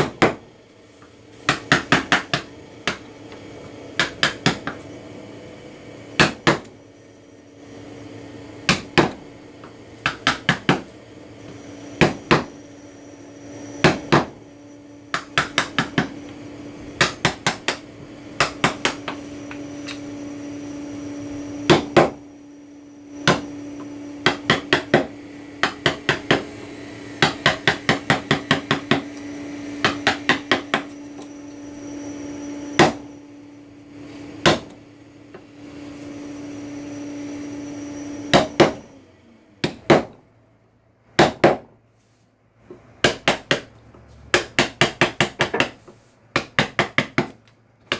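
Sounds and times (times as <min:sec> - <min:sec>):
mallet striking chisel on wood: 0:01.5 - 0:03.0, 0:04.0 - 0:04.8, 0:08.7 - 0:09.2, 0:10.0 - 0:10.9, 0:15.1 - 0:16.1, 0:17.0 - 0:17.8, 0:18.4 - 0:19.2, 0:21.7 - 0:22.2, 0:24.2 - 0:26.4, 0:27.2 - 0:29.1, 0:29.8 - 0:30.9, 0:39.6 - 0:40.2, 0:41.2 - 0:41.7, 0:43.0 - 0:43.7, 0:44.3 - 0:47.9.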